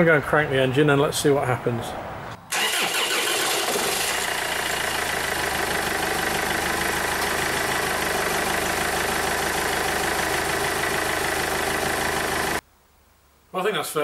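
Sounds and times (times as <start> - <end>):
car engine idling: 2.6 - 12.6.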